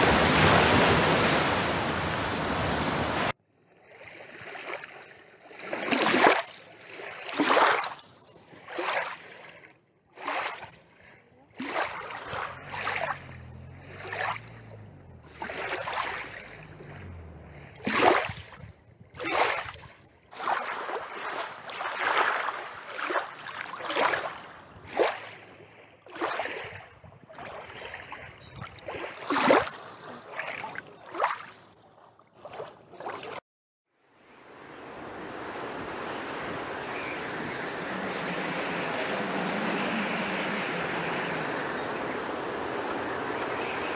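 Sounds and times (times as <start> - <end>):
waves splashing on rocky shore: 0.0 - 3.4, 10.1 - 26.9.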